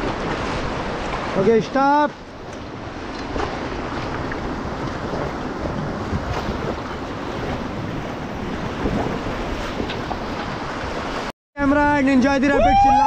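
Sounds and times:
wind noise on microphone: 2.3s - 11.3s.

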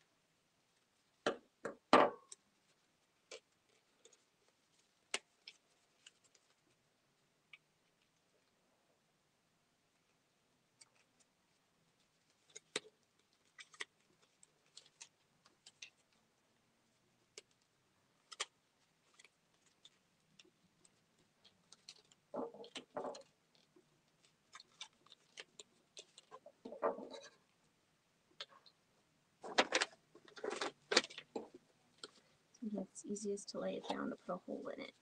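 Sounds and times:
paper clicks and crinkles: 2.6s - 6.8s, 10.8s - 16.3s, 17.2s - 27.5s, 29.4s - 32.4s.

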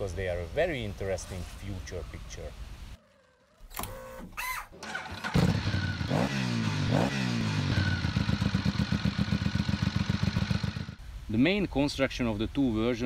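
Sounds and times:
motorbike engine pulsing drone: 5.0s - 11.0s.

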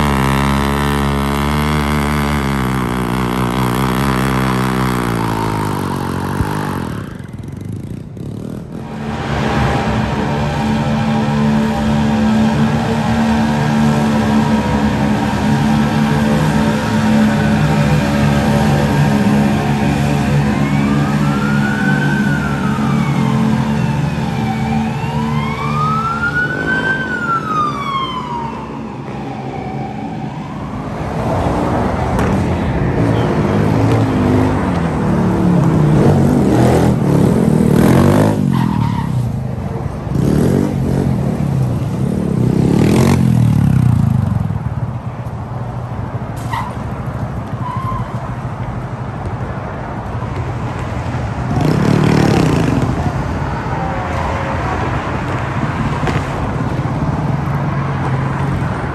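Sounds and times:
engines running: 0.0s - 58.9s
motorcycles revving and passing: 0.0s - 58.9s
siren wailing: 9.8s - 31.4s.

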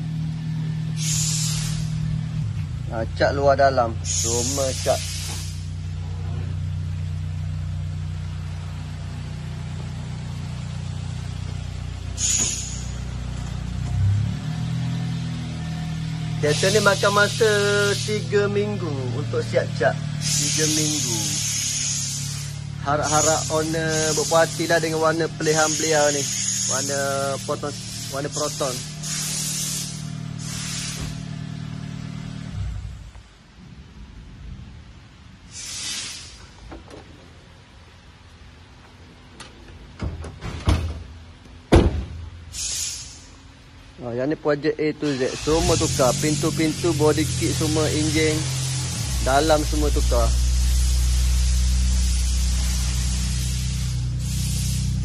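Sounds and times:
low mechanical drone: 0.0s - 55.0s
short hiss: 1.0s - 2.1s, 4.0s - 5.9s, 12.1s - 13.4s, 20.1s - 31.4s, 35.4s - 36.7s, 42.5s - 43.6s, 45.0s - 47.4s, 48.4s - 55.0s
faint low rumble: 32.6s - 35.5s.

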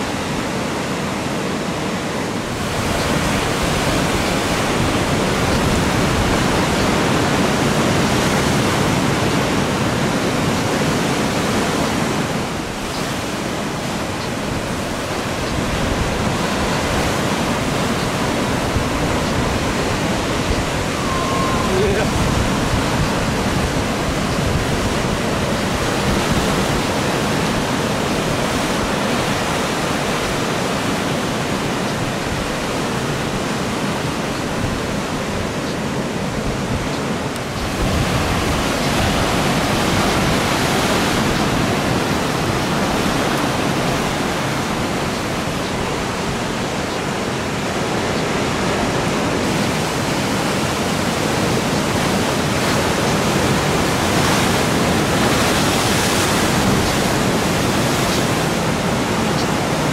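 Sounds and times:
ocean surf breaking: 0.0s - 59.9s.

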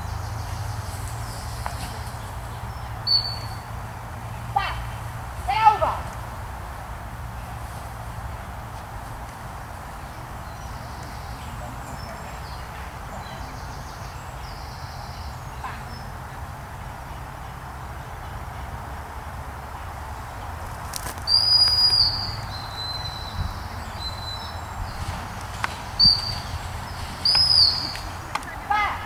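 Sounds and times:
outdoor background noise: 0.0s - 29.0s.

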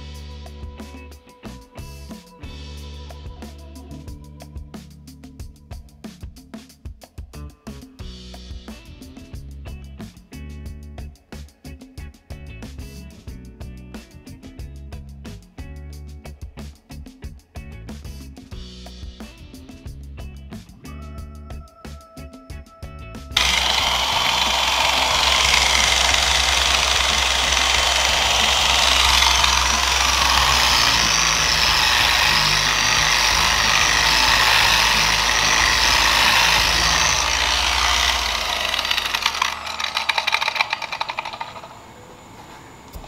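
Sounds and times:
electric polisher running: 23.4s - 41.9s
polisher rattling: 23.4s - 42.0s.

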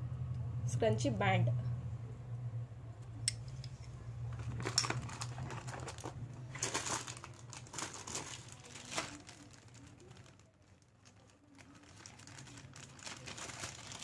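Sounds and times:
low hum: 0.0s - 7.6s
packaging rustles: 4.3s - 14.0s.

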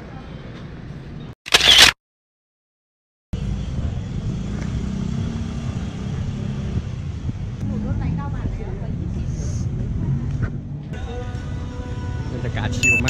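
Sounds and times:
road traffic rumble: 3.4s - 13.0s.

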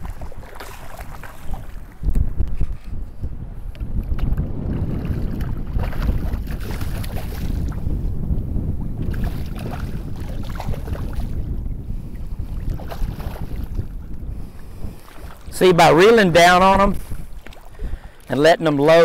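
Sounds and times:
fish thrashing at surface: 0.0s - 1.9s
water lapping and splashing: 0.0s - 19.0s
wind rumble on microphone: 0.0s - 19.0s.

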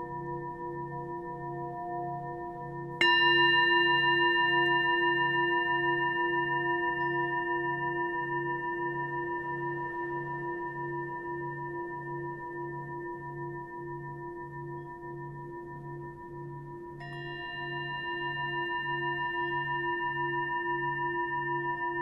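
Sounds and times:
singing bowl ringing: 0.0s - 16.2s, 17.0s - 22.0s.

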